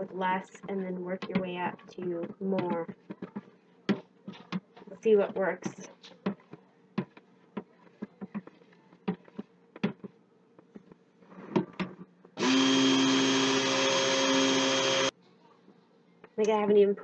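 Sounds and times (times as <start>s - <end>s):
stick blender running: 12.4s - 15.1s.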